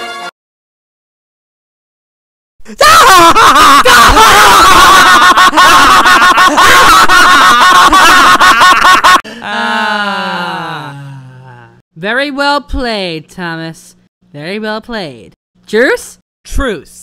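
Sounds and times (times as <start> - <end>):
distorted evil cackling laugh: 2.7 - 9.3.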